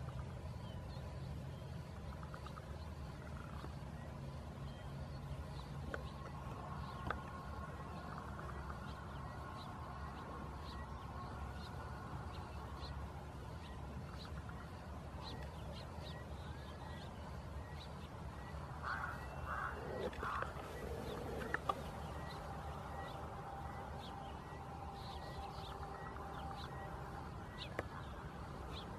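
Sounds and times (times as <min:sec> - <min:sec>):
steady low hum: 0:00.0 - 0:28.9
animal or bird calls: 0:18.8 - 0:23.2.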